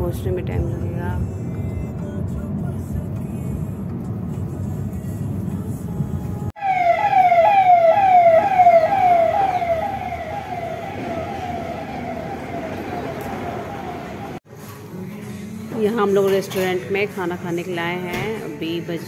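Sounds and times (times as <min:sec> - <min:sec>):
road rumble inside car: 0:00.0 - 0:06.5
falling electronic siren tone: 0:06.6 - 0:14.4.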